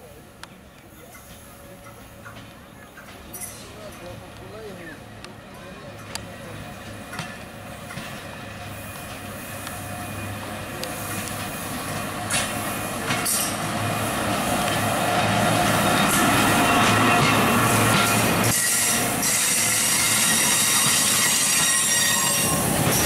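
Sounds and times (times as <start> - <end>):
diesel locomotive: 0.0 - 23.0
train coaches rolling past: 0.0 - 23.0
wheels clicking over rail joints: 10.7 - 14.0.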